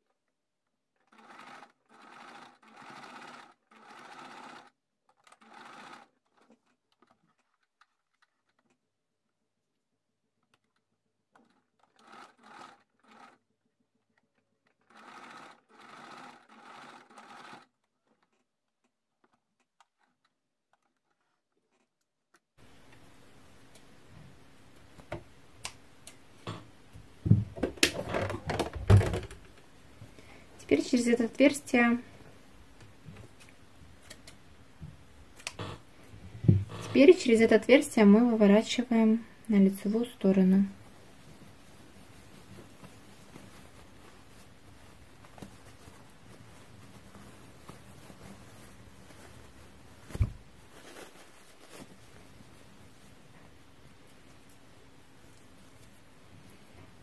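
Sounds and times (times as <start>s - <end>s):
sewing machine stitching: 1.0s - 8.7s, 11.3s - 13.5s, 14.2s - 18.5s, 35.4s - 37.8s.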